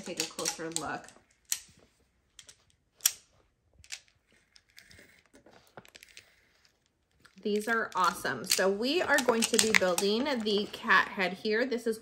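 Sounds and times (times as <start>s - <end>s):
plastic magnetic tiles clicking: 0.0s - 1.7s, 7.6s - 10.4s.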